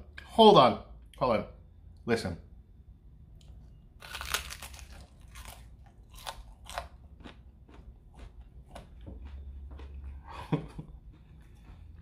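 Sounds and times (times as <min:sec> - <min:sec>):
crunchy chewing: 0:03.4 - 0:12.0
crisp pizza crust crunch: 0:04.0 - 0:12.0.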